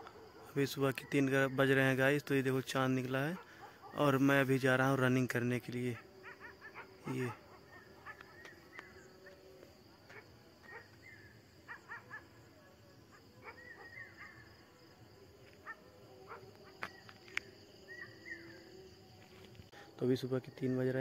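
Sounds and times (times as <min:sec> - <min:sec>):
faint dog barking: 0:00.0 - 0:01.0, 0:03.0 - 0:04.6, 0:05.8 - 0:18.9
high insect tone: 0:01.3 - 0:21.0.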